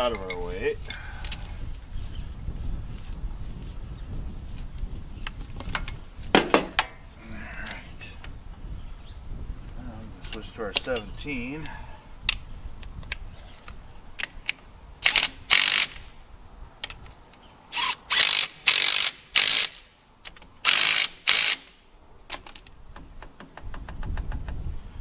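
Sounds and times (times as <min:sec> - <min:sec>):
socket ratchet clicking: 0:20.6 - 0:21.7.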